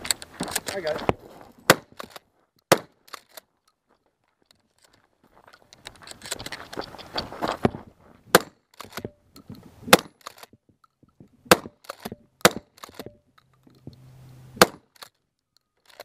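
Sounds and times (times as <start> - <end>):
handling and movement noise: 0.0 - 16.0
shotgun shots: 1.7 - 3.0, 8.3 - 9.1, 9.9 - 10.3, 11.5 - 13.1, 14.6 - 15.0
shotgun slide racking clack: 3.0 - 3.4, 8.7 - 9.1, 10.0 - 10.5, 11.5 - 13.1, 15.8 - 16.0.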